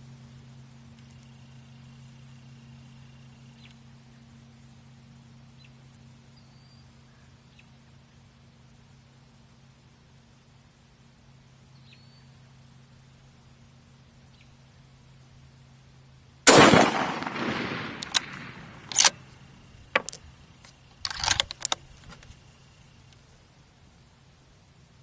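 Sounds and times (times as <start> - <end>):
rifle shot echoing: 16.4 - 20.1
rifle bolt metallic clicks: 16.5 - 19.3, 20.0 - 22.3.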